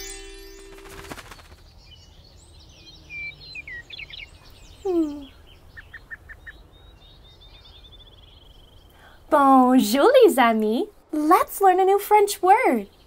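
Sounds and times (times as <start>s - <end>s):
birds chirping and twittering: 0.0s - 11.0s, 11.6s - 13.0s
faint outdoor hiss: 0.0s - 13.0s.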